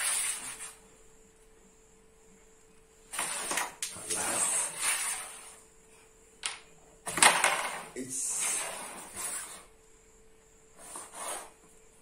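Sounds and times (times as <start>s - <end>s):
pieces sliding on board: 3.1s - 5.6s.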